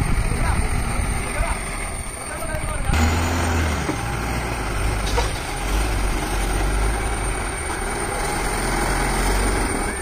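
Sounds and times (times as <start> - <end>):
diesel truck engine rumbling: 0.0 - 10.0.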